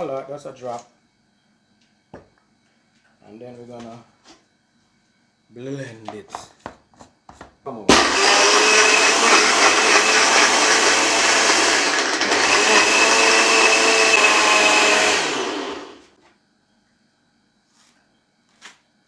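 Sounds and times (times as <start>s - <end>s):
blender whirring: 7.9s - 16.2s.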